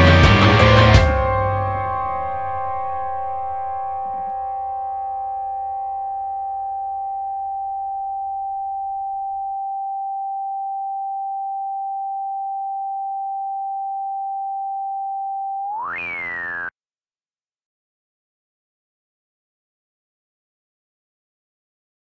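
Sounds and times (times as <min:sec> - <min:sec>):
electronic rock instruments: 0:00.0 - 0:09.4, 0:15.6 - 0:16.7
synthesizer sine tone: 0:00.5 - 0:16.7.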